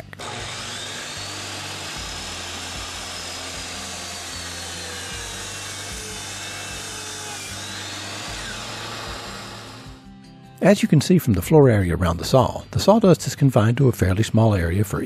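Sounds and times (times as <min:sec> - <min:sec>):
miter saw cutting wood: 0:00.0 - 0:10.1.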